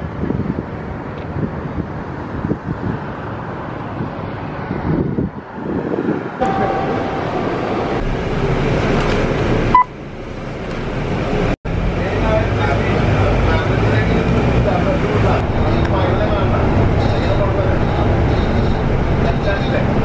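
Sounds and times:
wind noise: 0.0 - 11.5
traffic noise: 0.0 - 20.0
vehicle rumble: 0.0 - 20.0.

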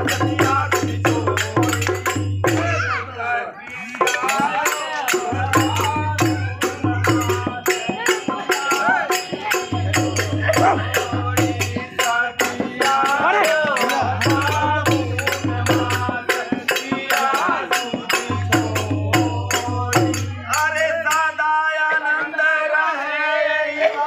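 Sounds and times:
sharp hand percussion strikes: 0.0 - 3.0, 3.9 - 22.4
dholak drum: 0.0 - 3.1, 3.8 - 23.6
men singing together: 0.0 - 24.0.

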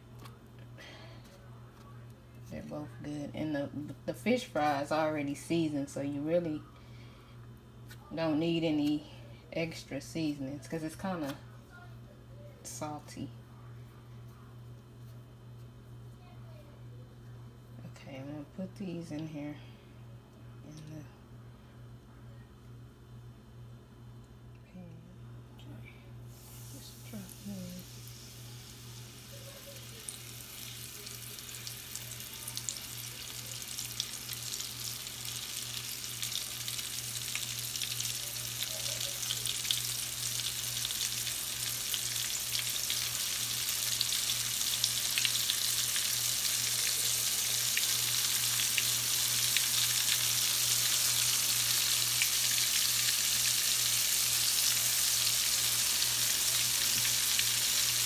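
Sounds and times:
shrimp frying in hot oil: 26.3 - 58.0.

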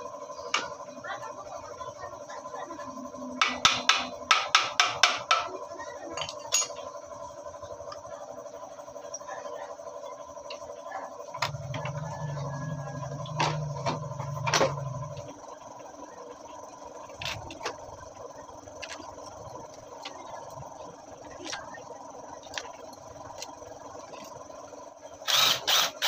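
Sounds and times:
metal parts clinking and knocking: 6.1 - 6.9.

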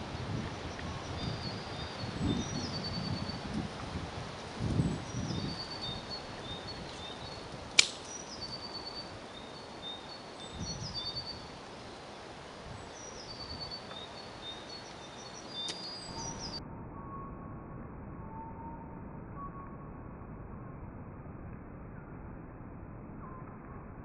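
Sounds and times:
small birds chirping: 0.0 - 16.6
dart striking with sharp smack: 7.8 - 8.2.

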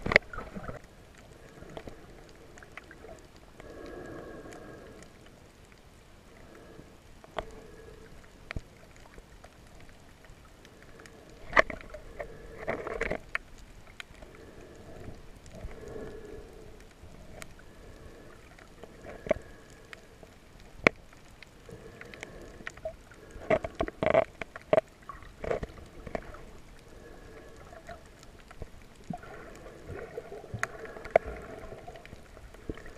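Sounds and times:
muffled underwater gurgling: 0.0 - 4.9.

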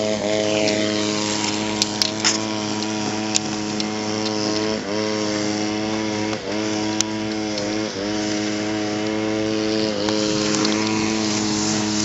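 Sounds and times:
motor-like hum: 0.0 - 12.0.

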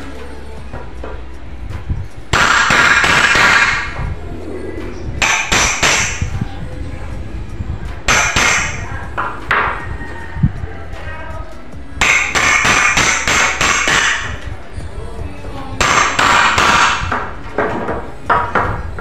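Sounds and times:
hammer striking steel spike: 2.3 - 3.9, 5.2 - 6.3, 8.1 - 8.8, 12.0 - 14.3.

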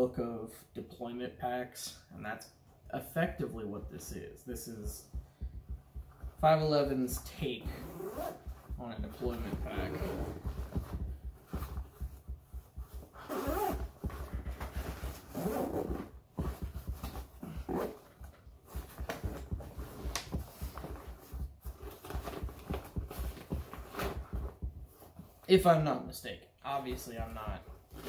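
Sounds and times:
straps and buckles knocking: 4.0 - 25.5
backpack fabric rustling: 7.0 - 25.4.

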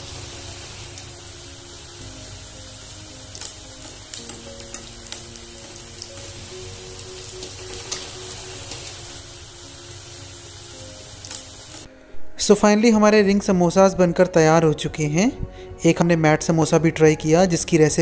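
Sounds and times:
food deep-frying in oil: 0.0 - 11.9
background music of held notes: 0.0 - 18.0.

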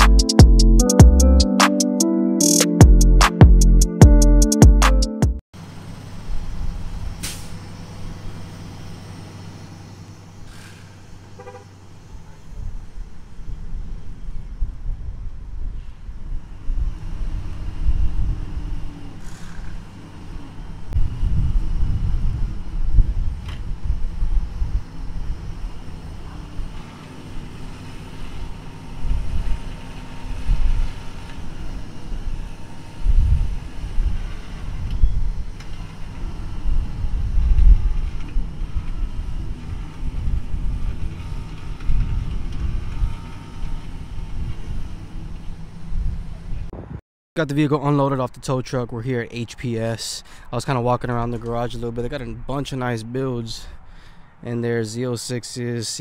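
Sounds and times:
brief pitched sound: 0.0 - 5.4
tow truck engine running: 5.6 - 14.6, 16.1 - 46.7
short hisses: 10.4 - 11.0
winch whine: 16.4 - 46.6.

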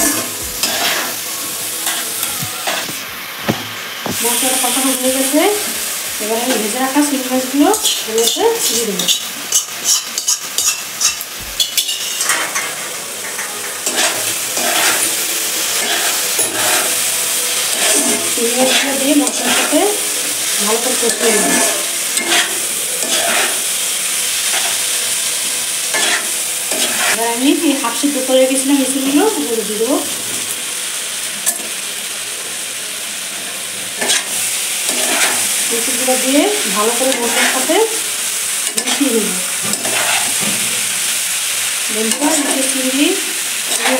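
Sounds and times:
spatula scraping and stirring: 0.0 - 1.2, 7.7 - 24.9, 25.9 - 27.2, 34.0 - 37.7, 38.6 - 40.8
frying sizzle: 0.0 - 43.9.

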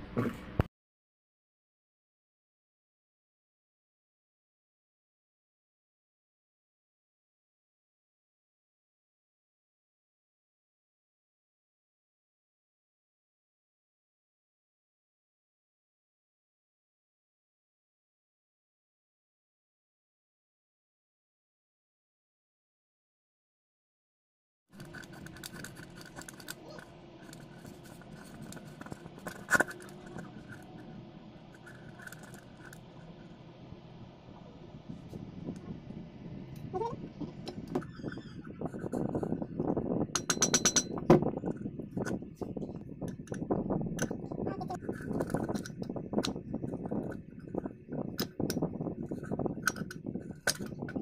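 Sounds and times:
metal parts scraping and clicking: 24.8 - 30.8, 31.5 - 32.8
spanner clinking on metal: 40.2 - 41.1.

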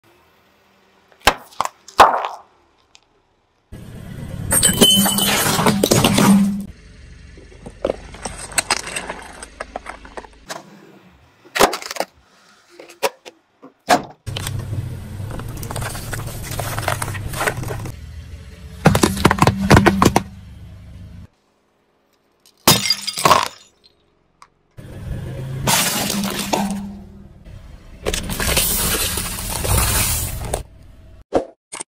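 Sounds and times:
car tyre rolling: 1.6 - 12.1, 14.2 - 21.3, 24.8 - 31.2
glass cracking and shattering: 22.6 - 24.0.

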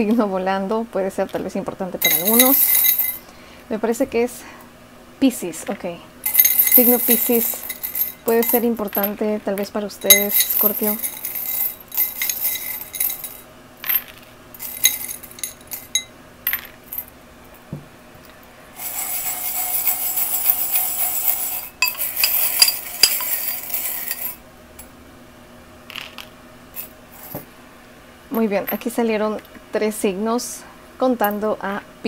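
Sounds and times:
metal charms clinking in glass bowl: 2.0 - 3.2, 6.2 - 17.1, 18.8 - 24.4.

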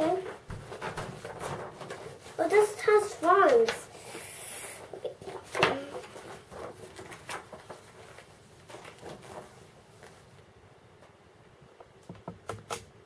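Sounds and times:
paper rustling and crackling: 0.0 - 4.0, 4.8 - 10.5.

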